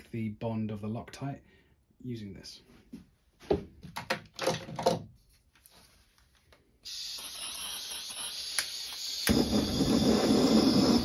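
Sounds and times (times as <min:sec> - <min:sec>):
gas hissing from a torch: 0:06.8 - 0:11.0
torch flame rushing: 0:06.9 - 0:11.0.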